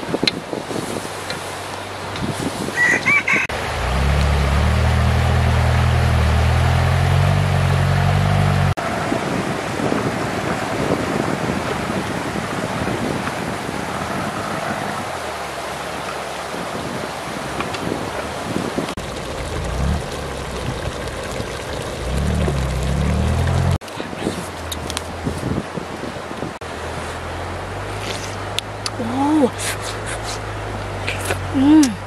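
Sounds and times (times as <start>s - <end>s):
rooster crowing: 2.8s - 3.6s
river flowing: 3.5s - 32.0s.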